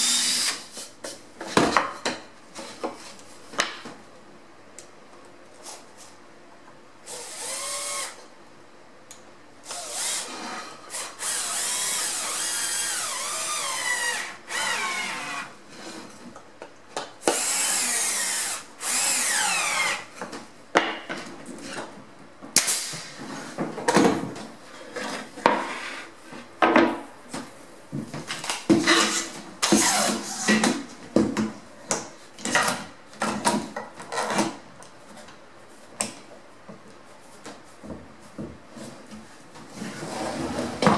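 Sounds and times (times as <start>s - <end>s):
drill driving screws into wood: 0.0s - 0.6s, 7.1s - 8.2s, 9.7s - 15.5s, 17.2s - 20.1s, 29.6s - 30.6s.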